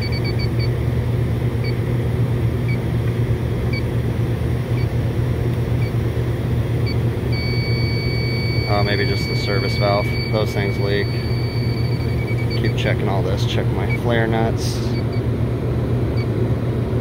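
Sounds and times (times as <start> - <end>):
leak detector ticking and beeping: 0.0 - 0.8, 4.7 - 4.9, 5.8 - 6.0, 6.8 - 15.3
low machinery hum: 0.0 - 17.0.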